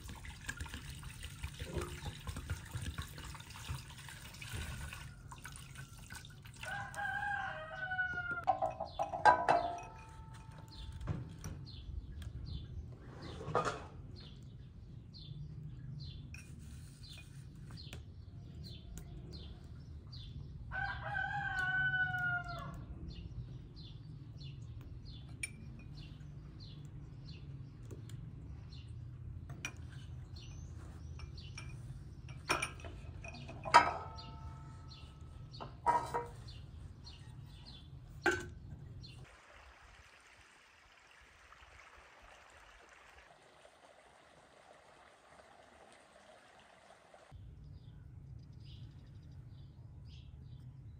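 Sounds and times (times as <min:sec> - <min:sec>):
rooster crowing: 0:06.6 - 0:08.6, 0:20.7 - 0:22.8.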